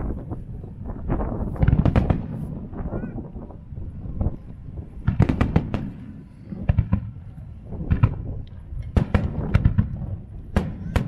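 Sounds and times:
steady low rumble: 0.0 - 11.0
firework shells bursting: 5.0 - 11.0.

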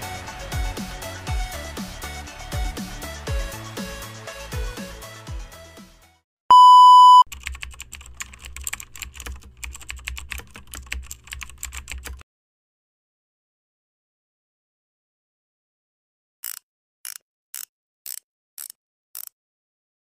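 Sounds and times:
background music: 0.0 - 6.2
electronic beep: 6.5 - 7.2
computer keyboard typing: 7.2 - 12.2.

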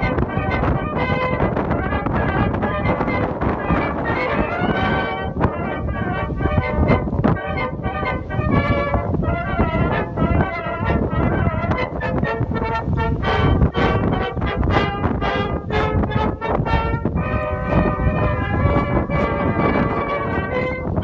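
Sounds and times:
melody over a beat: 15.6 - 20.2.

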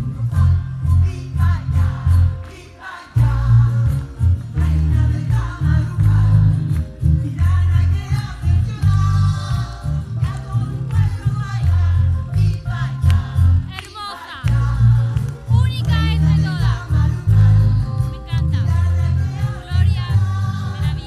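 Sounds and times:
heavy pulsing bass: 0.0 - 2.5, 3.1 - 13.8, 14.4 - 21.0
amplified band with keyboard: 0.0 - 21.0
woman singing: 9.1 - 21.0.

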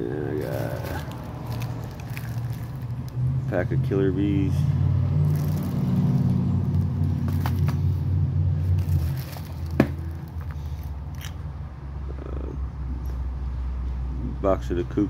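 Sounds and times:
cellophane and cardboard crinkling: 0.2 - 3.1, 5.2 - 7.8, 8.6 - 11.3.

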